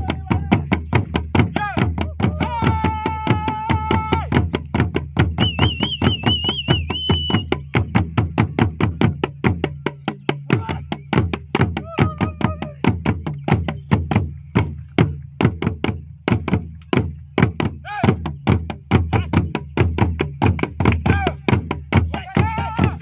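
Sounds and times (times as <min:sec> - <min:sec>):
drums in fast rhythm: 0:00.0 - 0:23.0
high wavering whistle: 0:05.3 - 0:07.6.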